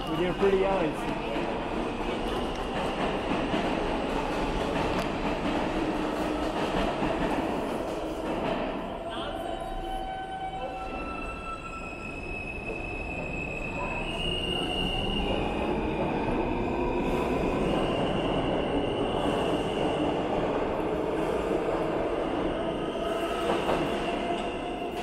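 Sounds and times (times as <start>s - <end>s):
train wheels rumbling on rails: 0.0s - 9.1s, 12.2s - 25.0s.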